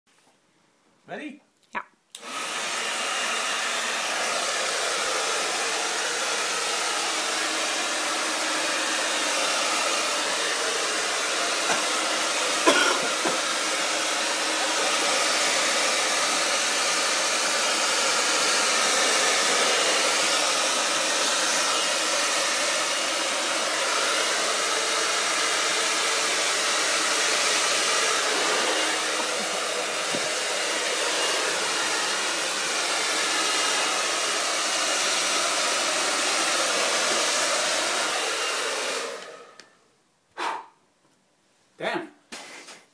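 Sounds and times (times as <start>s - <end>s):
hair dryer blowing: 2.2s - 40.6s.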